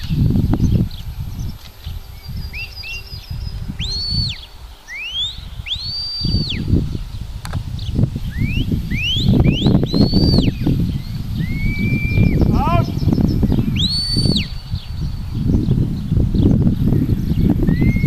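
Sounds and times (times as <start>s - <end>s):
short rising whistles: 2.1s - 6.7s, 8.2s - 15.1s, 17.6s - 18.0s
high whistles: 2.2s - 6.8s, 8.2s - 15.2s, 17.6s - 18.0s.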